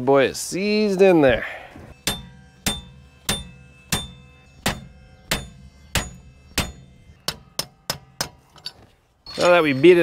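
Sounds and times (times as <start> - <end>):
hammer striking metal hub: 2.0 - 10.0.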